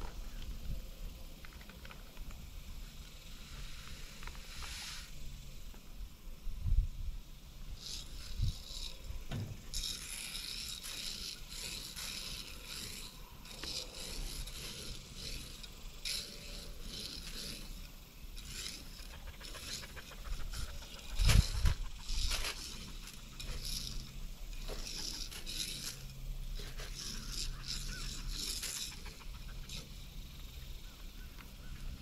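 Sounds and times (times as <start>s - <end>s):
dull thumps: 9.3s - 9.7s.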